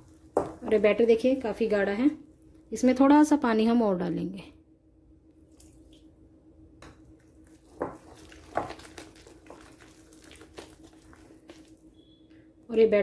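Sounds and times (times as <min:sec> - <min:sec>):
faint steady hum: 0:00.0 - 0:13.0
batter squelching in a glass bowl: 0:07.2 - 0:12.0.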